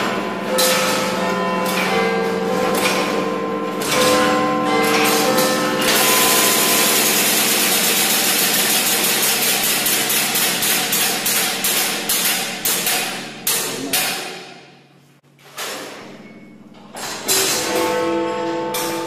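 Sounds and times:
clock mechanism clattering: 0.0 - 14.2.

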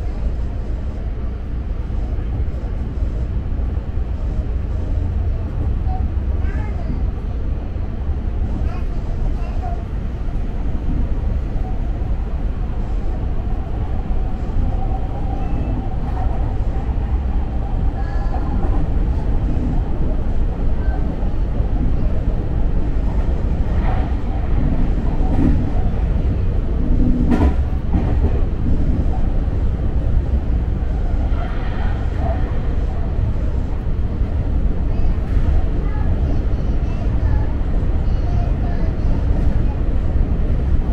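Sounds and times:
train wheels rumbling on rail: 0.0 - 40.9.

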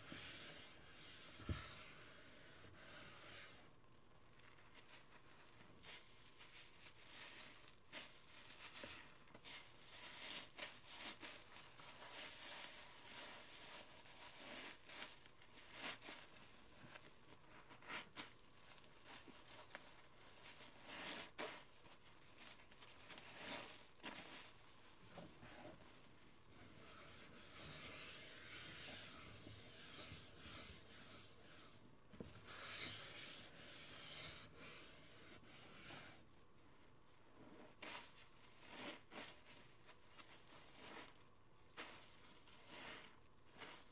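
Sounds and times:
sponge squelching in lather: 4.4 - 26.0, 37.6 - 43.9.

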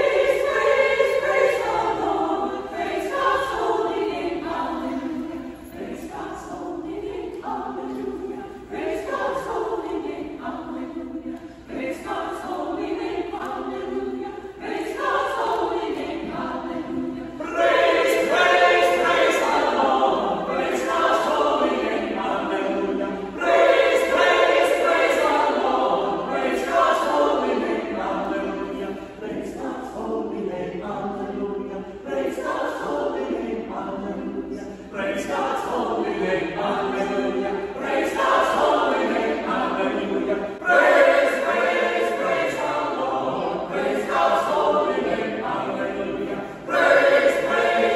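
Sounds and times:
mixed choir singing: 0.0 - 47.9.

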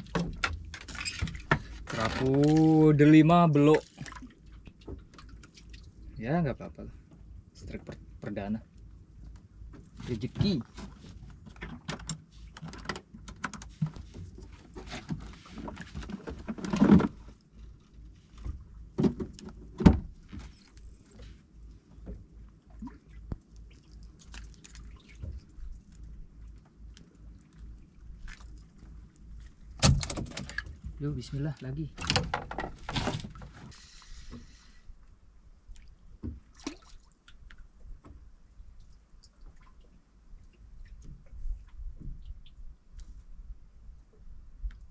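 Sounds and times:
water dripping and splashing: 3.6 - 6.1, 22.6 - 31.0, 35.7 - 37.7.

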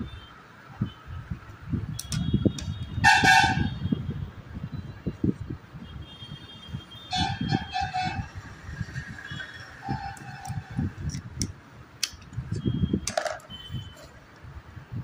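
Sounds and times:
sharp clicks: 1.9 - 2.7, 10.4 - 13.5.

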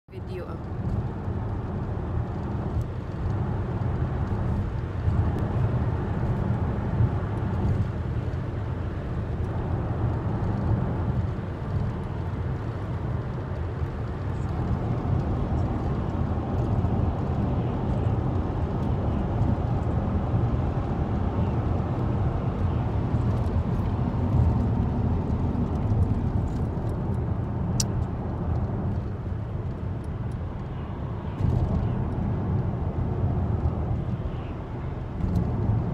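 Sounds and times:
car cabin road noise: 0.1 - 35.9.

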